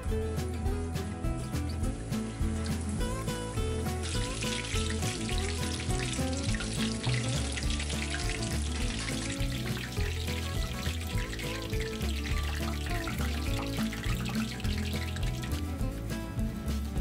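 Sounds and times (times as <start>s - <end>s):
background music: 0.0s - 17.0s
food deep-frying in oil: 2.4s - 15.8s.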